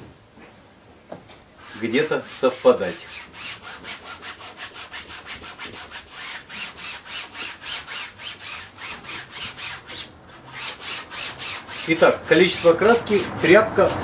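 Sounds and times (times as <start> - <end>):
rag scrubbing paint on canvas: 1.6 - 14.0.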